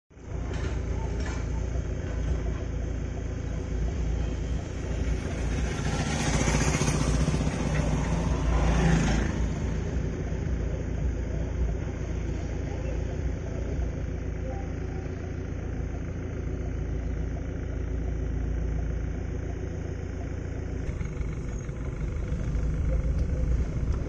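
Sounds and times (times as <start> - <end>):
engine rumble: 0.1 - 24.0
vehicle passing: 3.5 - 12.4, 20.8 - 24.0.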